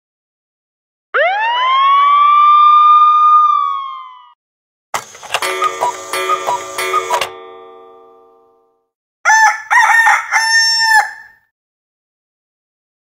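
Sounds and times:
pitch-bending phone alert: 0:05.3 - 0:08.6
chiming electronic tone: 0:05.4 - 0:08.8.

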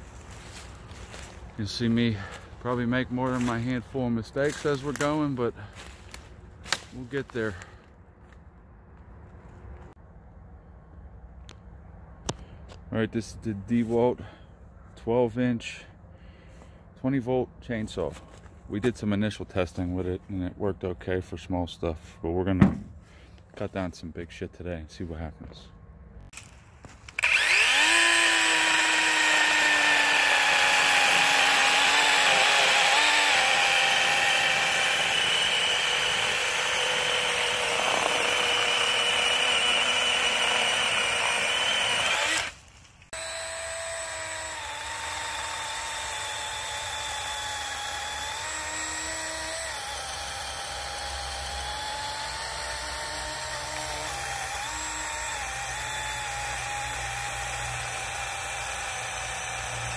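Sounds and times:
electric chainsaw sawing wood: 0:27.1 - 0:59.9.

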